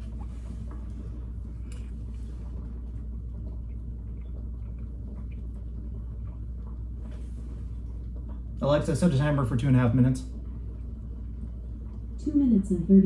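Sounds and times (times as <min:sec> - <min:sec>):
low background rumble: 0:00.0 - 0:13.0
chewing clicks: 0:03.3 - 0:06.9.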